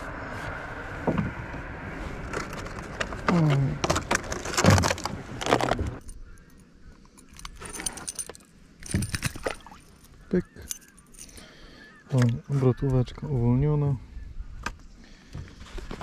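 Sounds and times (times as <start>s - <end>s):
fishing lure metallic jingling: 6.0s - 11.5s.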